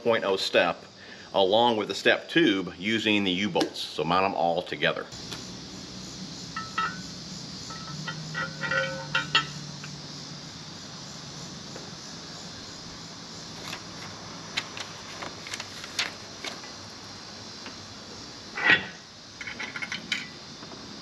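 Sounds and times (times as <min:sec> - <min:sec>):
metal hardware clinking: 0:06.5 - 0:07.1, 0:07.7 - 0:10.0, 0:18.6 - 0:20.4
sharp metal taps: 0:06.5 - 0:07.1, 0:07.7 - 0:10.0.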